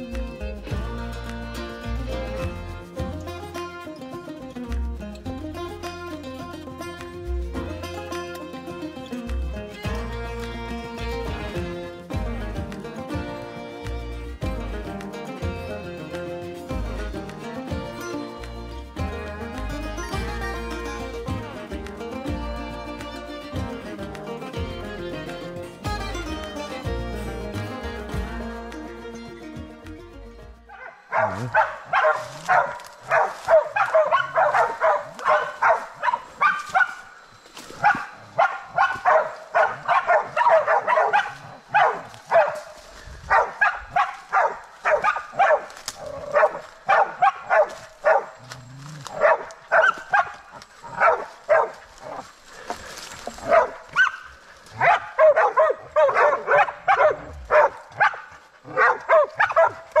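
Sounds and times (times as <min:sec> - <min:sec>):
dogs barking: 0:30.7 - 1:00.0.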